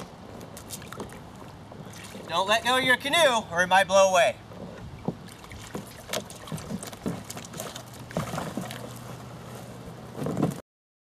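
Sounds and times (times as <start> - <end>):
water lapping: 0.5 - 2.5, 4.5 - 9.8
canoe hull and paddle knocking: 4.5 - 9.2.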